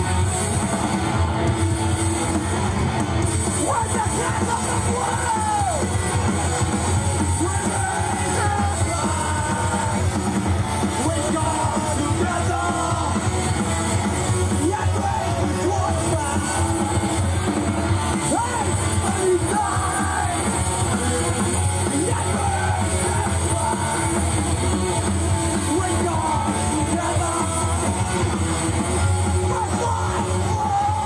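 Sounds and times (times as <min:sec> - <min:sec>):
punk rock band playing live: 0:00.0 - 0:31.0
person singing into microphone: 0:07.4 - 0:10.1.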